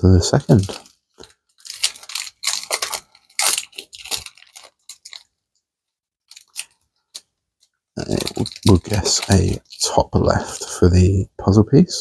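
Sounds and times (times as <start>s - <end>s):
foil wrapper crinkling and tearing: 0.3s - 5.5s, 6.2s - 7.3s, 8.0s - 10.9s.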